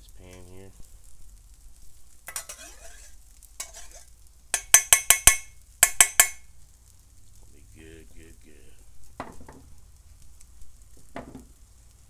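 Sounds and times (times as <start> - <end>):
onions scraped into bowl: 2.3 - 4.1
steel bowl clinking: 2.3 - 6.5
sharp metallic taps: 4.6 - 6.5.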